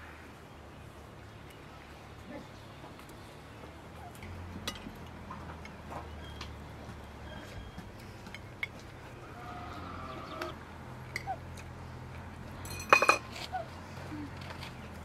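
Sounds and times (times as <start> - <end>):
faint animal calls: 9.2 - 10.6
cutlery clinking on plates: 12.7 - 13.4.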